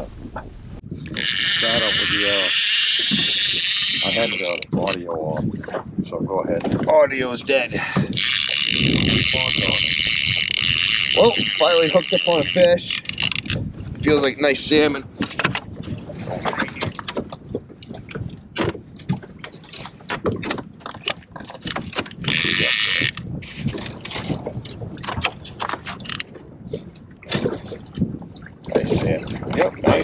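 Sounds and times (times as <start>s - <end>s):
water splashing against boat hull: 0.0s - 30.0s
fishing reel clicking: 1.1s - 4.9s, 8.1s - 13.6s, 22.2s - 23.2s, 26.0s - 26.2s.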